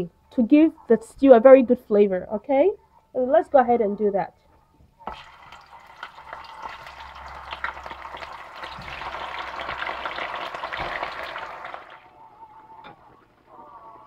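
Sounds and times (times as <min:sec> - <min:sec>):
meat sizzling in hot oil: 0:05.1 - 0:12.0.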